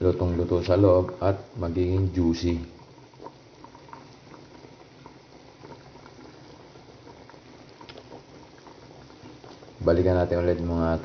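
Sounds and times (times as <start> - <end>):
liquid simmering and bubbling: 0.0 - 11.0.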